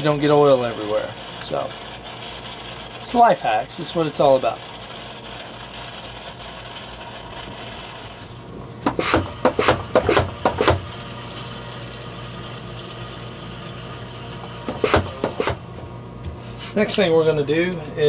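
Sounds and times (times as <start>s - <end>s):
clattering knocks of oil extractor: 8.8s - 10.9s, 14.7s - 15.6s.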